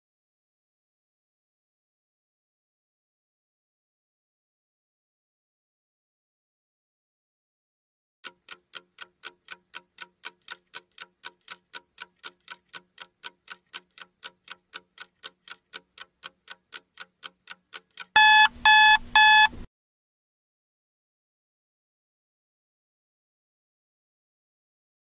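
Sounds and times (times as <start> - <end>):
clock ticking: 8.2 - 19.6
loud electronic alarm beeps: 18.2 - 19.6.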